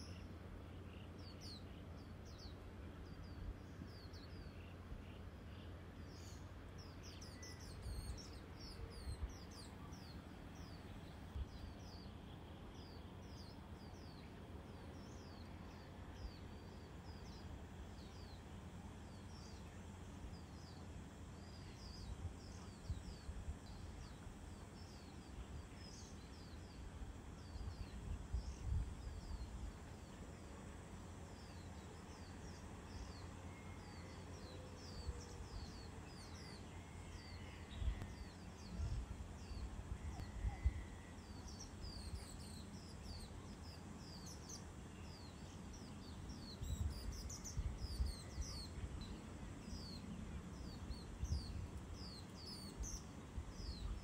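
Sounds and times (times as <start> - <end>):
small birds chirping: 0.0 - 54.0
wind rumbling on microphone: 21.8 - 26.2, 26.9 - 30.2, 37.6 - 43.2, 45.8 - 54.0.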